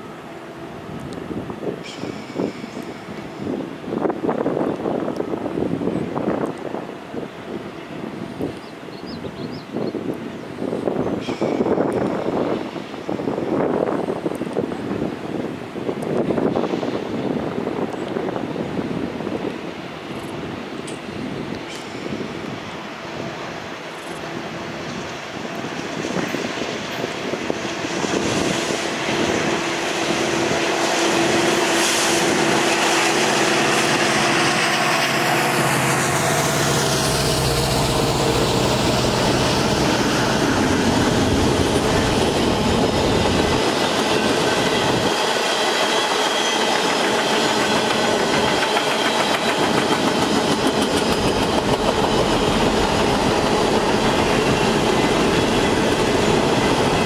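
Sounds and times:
diesel locomotive engine droning: 0:00.0 - 0:57.0
train wheels clicking over rail joints: 0:20.8 - 0:22.5, 0:30.4 - 0:57.0.

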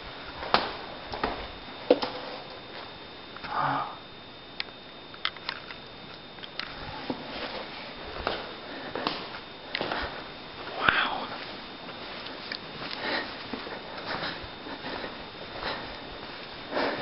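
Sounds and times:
person breathing and sniffing: 0:12.8 - 0:17.0.

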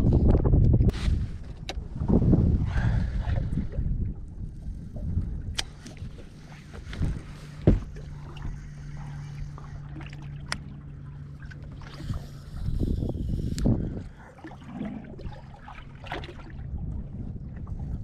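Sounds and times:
steady low hum: 0:00.0 - 0:18.0
wind rumbling on microphone: 0:00.0 - 0:18.0
thump: 0:07.6 - 0:07.9.

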